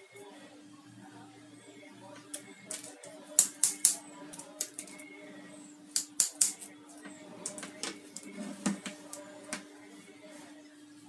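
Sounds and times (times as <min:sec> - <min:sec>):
wire cutters snipping wire: 0:02.3 - 0:05.0, 0:05.9 - 0:06.7.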